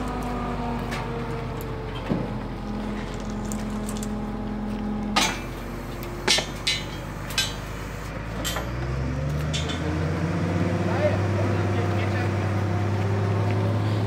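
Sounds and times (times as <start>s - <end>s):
hydraulic crane humming and whining: 0.0s - 14.0s
sharp metallic clanks: 5.2s - 5.6s, 6.2s - 7.8s, 8.4s - 8.8s.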